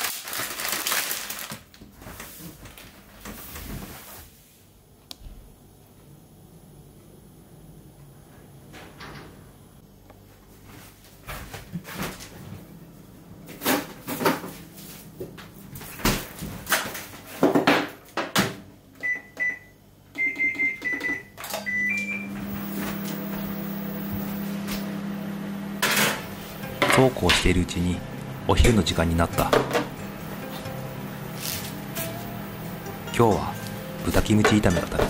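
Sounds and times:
microwave oven humming: 0.1 - 35.0
microwave button beeps: 19.0 - 22.4.

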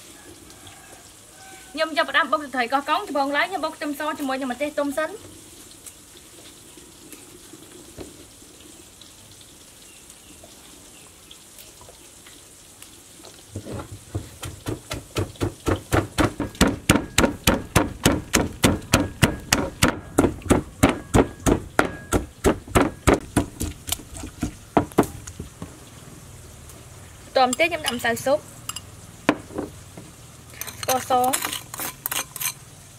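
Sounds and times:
pestle pounding in a mortar: 14.0 - 25.2.

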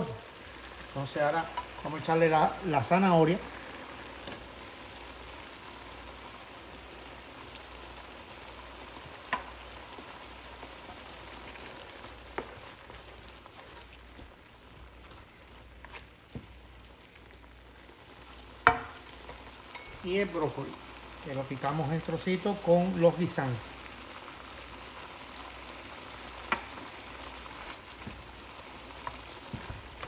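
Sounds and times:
vegetables sizzling in a pan: 0.0 - 30.0
wooden spatula clicking on pan: 9.3 - 9.5, 18.6 - 19.0, 26.5 - 26.7.

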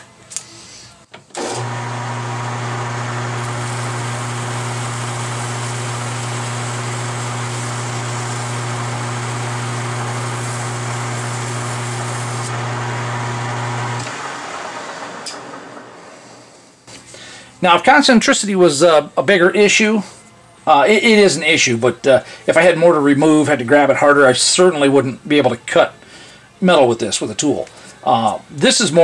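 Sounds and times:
metal lathe humming: 1.4 - 16.3
lathe chuck running down: 1.4 - 16.6
sandpaper hissing on spinning part: 3.4 - 12.5.

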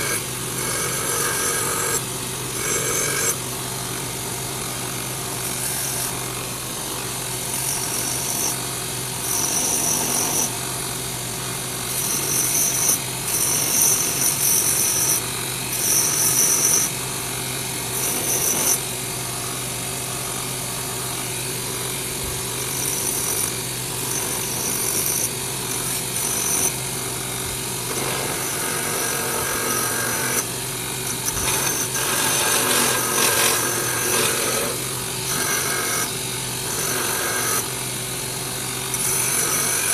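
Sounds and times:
belt grinder motor hum: 0.0 - 39.9
knife blade grinding on belt: 2.6 - 3.4, 27.8 - 36.1, 38.9 - 39.9.

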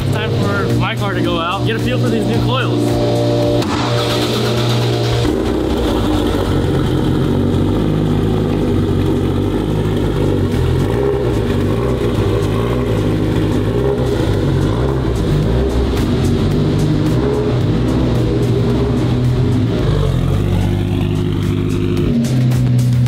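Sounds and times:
car engine running at low speed: 0.0 - 23.0.

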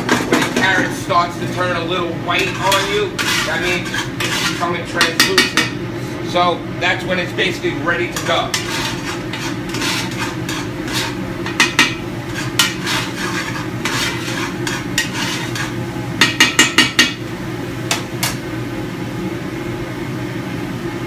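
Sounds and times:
exhaust hood hum: 0.0 - 20.0
utensil scraping vegetables in a pot: 0.1 - 6.2, 8.0 - 17.2
knocks against a metal pot: 16.2 - 17.2.

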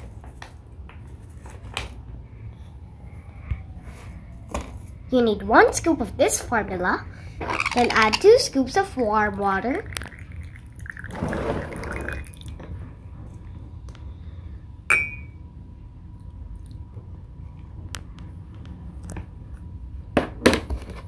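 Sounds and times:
water trickling pour: 9.8 - 12.6.

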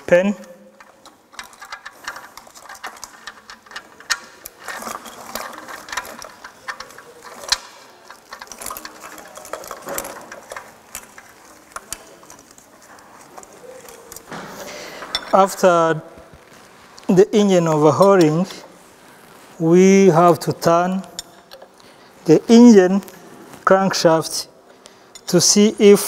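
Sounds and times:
metal tools clinking: 0.1 - 15.7, 20.3 - 21.9.

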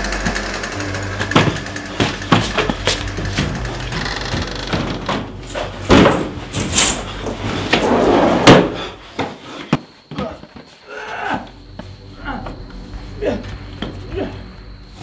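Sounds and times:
steady low hum: 0.0 - 9.2
loud knocks and bangs: 1.2 - 6.7.

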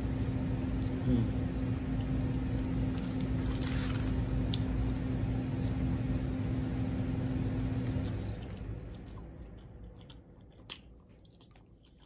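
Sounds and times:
machine hum: 0.0 - 11.8.

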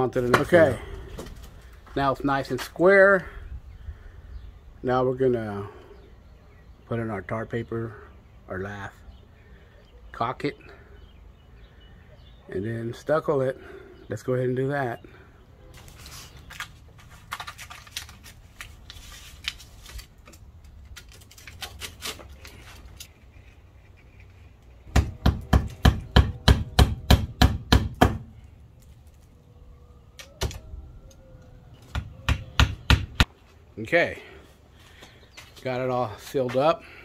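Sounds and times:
hammer driving nails: 24.9 - 28.3.

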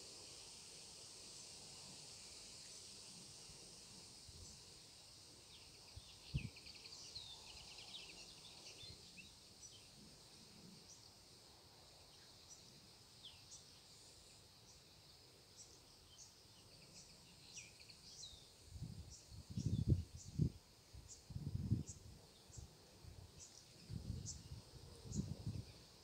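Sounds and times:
small birds chirping: 4.4 - 10.0, 12.0 - 26.0.

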